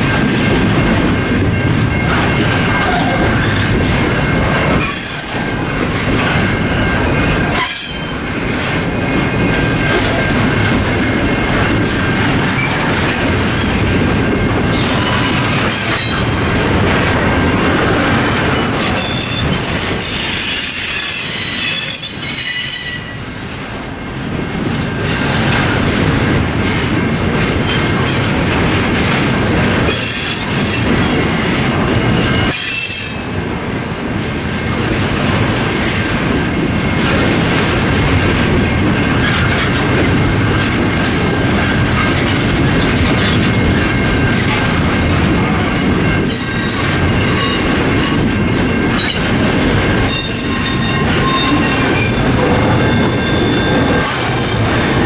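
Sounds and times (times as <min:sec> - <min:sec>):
train wheels clacking over rail joints: 0:00.0 - 0:22.9, 0:24.7 - 0:33.5, 0:34.6 - 0:55.0
train wheels squealing: 0:01.6 - 0:08.3, 0:11.9 - 0:12.9, 0:14.7 - 0:23.4, 0:29.9 - 0:33.6, 0:42.0 - 0:55.0.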